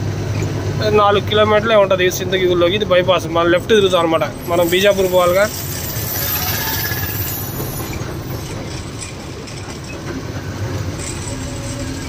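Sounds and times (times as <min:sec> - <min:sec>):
road and cab noise: 0:00.0 - 0:12.0
truck diesel engine humming: 0:00.0 - 0:12.0.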